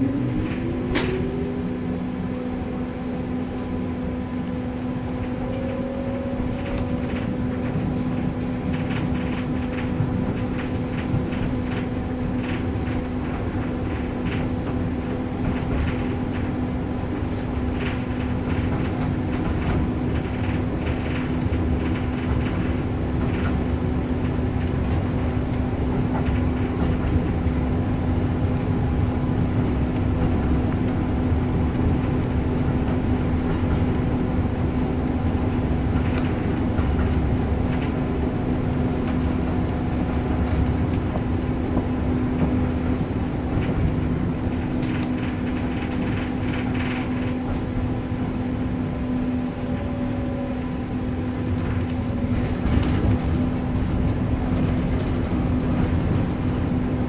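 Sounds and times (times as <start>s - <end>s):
constant hum: 0.0s - 57.0s
tram wheels rumbling on rails: 0.0s - 57.0s.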